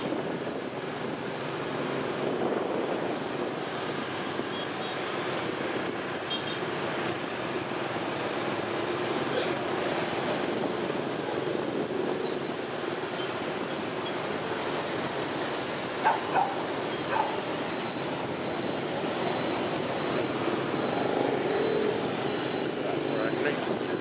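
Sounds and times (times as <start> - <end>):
wind noise: 0.0 - 6.2
scooters and cars passing: 0.0 - 24.0.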